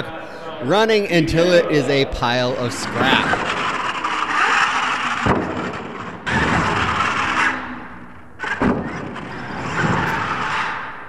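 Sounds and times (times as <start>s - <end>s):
toy truck motor and tyres on dirt: 3.0s - 11.0s
toy truck landing thud: 3.9s - 7.5s, 8.4s - 10.6s.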